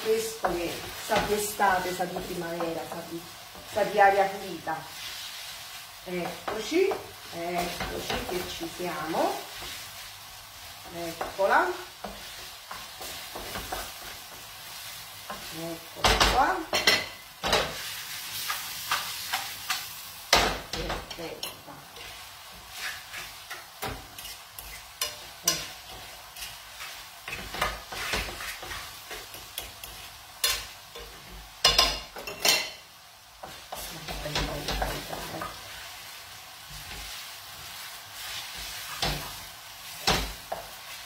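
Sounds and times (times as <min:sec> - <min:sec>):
pasta sizzling in frying pan: 0:00.0 - 0:41.0
utensil scraping and knocking pan: 0:22.7 - 0:32.7.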